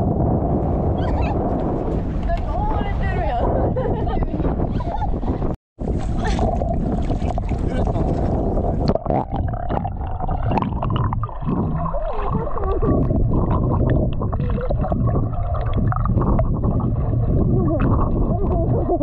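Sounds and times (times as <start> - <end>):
steady low rumble: 0.0 - 19.0
underwater gurgling and bubbles: 5.4 - 19.0.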